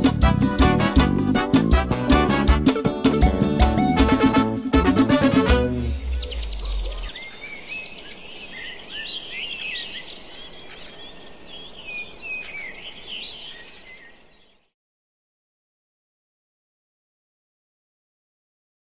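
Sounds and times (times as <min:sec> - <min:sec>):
song's low note: 0:00.6 - 0:07.1
birds chirping and singing: 0:05.7 - 0:14.7.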